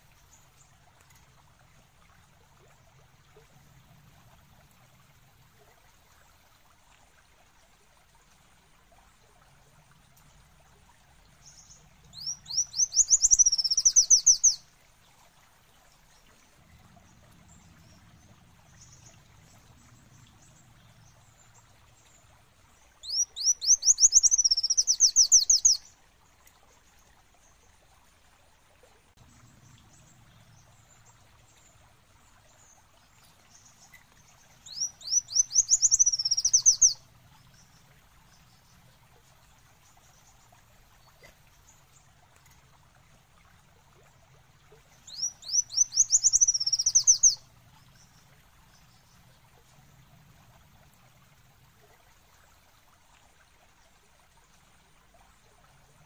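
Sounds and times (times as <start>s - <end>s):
sunbird singing: 11.5s - 14.6s, 23.0s - 25.8s, 34.6s - 37.0s, 45.0s - 48.1s.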